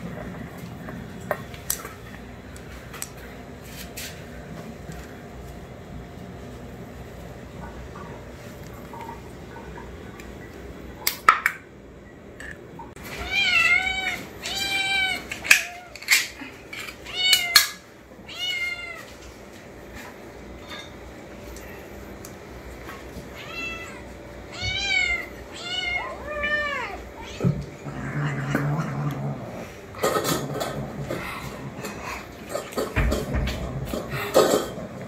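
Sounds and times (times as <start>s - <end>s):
kittens meowing: 23.3s - 28.6s.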